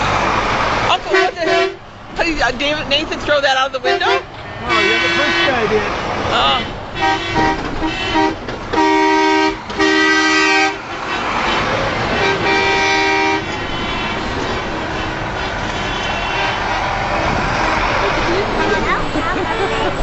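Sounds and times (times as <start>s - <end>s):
truck engines and tyres passing: 0.0s - 20.0s
truck horn blasts: 1.0s - 1.8s, 3.9s - 6.0s, 6.6s - 18.0s.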